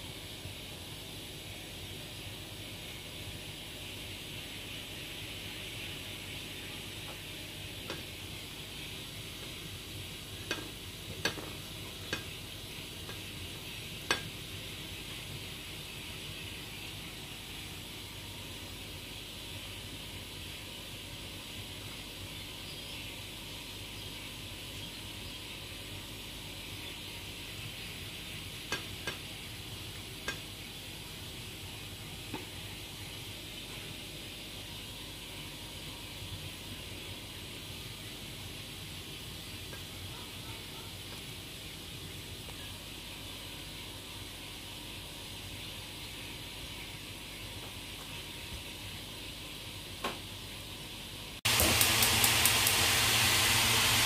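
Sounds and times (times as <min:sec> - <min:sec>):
steady background hiss: 0:00.0 - 0:54.0
chicken frying in oil: 0:00.1 - 0:22.5, 0:51.4 - 0:54.0
sharp clicks in a bowl: 0:14.0 - 0:14.3, 0:28.7 - 0:29.3, 0:30.2 - 0:30.5.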